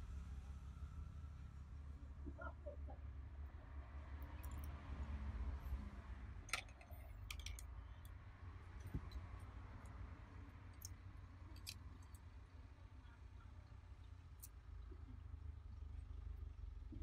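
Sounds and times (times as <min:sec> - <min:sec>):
low steady hum: 0:00.0 - 0:17.0
light clicks and ticks: 0:06.5 - 0:08.2.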